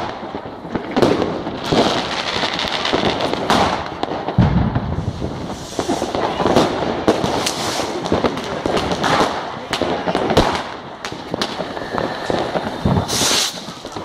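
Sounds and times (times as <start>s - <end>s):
firecracker bangs: 0.0s - 14.0s
fireworks crackling hiss: 0.0s - 14.0s
deep firework boom: 3.0s - 9.2s, 9.8s - 14.0s.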